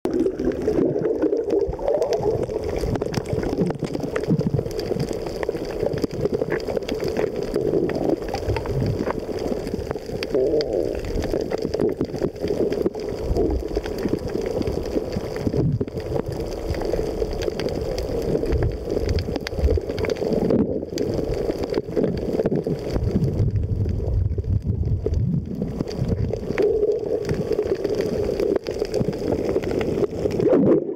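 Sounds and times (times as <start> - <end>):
underwater gurgle of moving water: 0.1 - 30.9.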